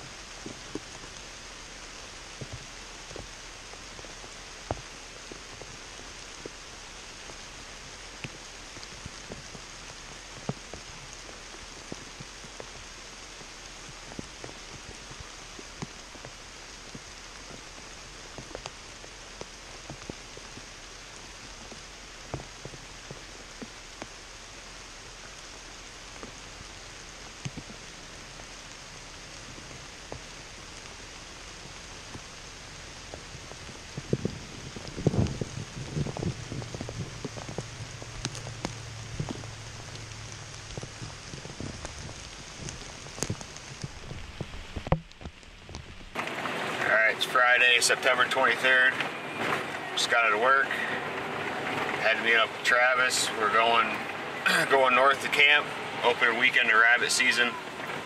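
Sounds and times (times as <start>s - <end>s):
light rain on leaves: 0.0s - 58.0s
raindrops ticking: 0.0s - 58.0s.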